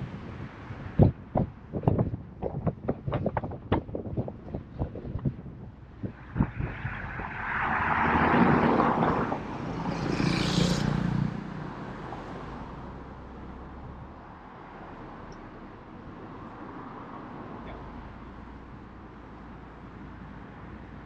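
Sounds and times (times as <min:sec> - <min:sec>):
wind buffets on microphone: 0:00.0 - 0:10.3
road and traffic noise: 0:00.0 - 0:21.0.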